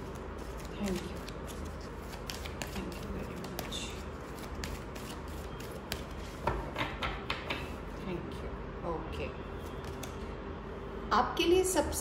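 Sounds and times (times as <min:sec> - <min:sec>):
cards being shuffled: 0:00.0 - 0:06.6, 0:09.7 - 0:10.2.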